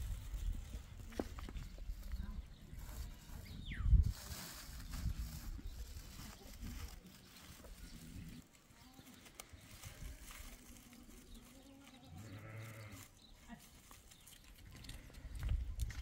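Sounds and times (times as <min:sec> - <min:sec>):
plastic feed sack rustling: 0:04.0 - 0:14.2
goat bleating: 0:12.2 - 0:13.0.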